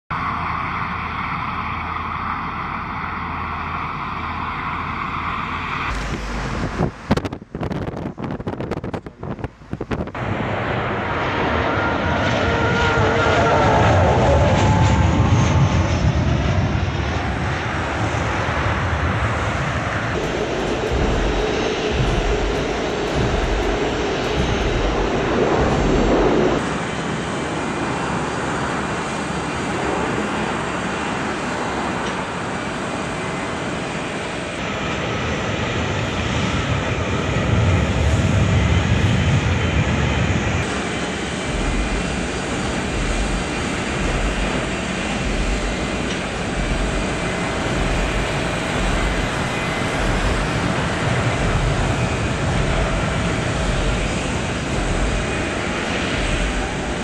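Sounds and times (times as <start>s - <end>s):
deep rumble: 0.1s - 26.8s, 34.7s - 57.0s
aircraft engine noise: 0.1s - 57.0s
faint whining tones: 19.3s - 26.7s, 40.6s - 57.0s.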